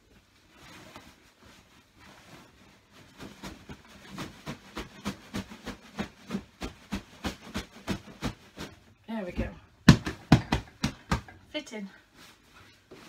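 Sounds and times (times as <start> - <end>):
pillow flapping thumps: 2.0 - 8.9.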